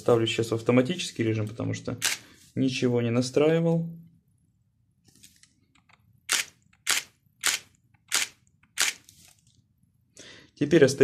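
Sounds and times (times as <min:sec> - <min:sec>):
camera shutter firing: 0:02.0 - 0:02.2, 0:06.3 - 0:09.1.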